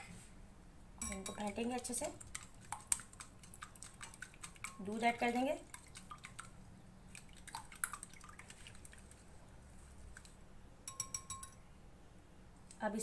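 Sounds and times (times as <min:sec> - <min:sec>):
milk dripping into bowl: 0:01.0 - 0:11.5.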